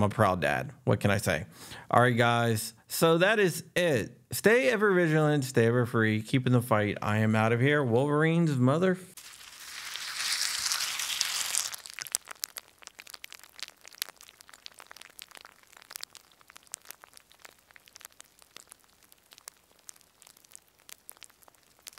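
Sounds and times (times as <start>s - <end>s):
hissing static: 9.1s - 21.9s
faint crackles and clicks: 9.2s - 21.9s.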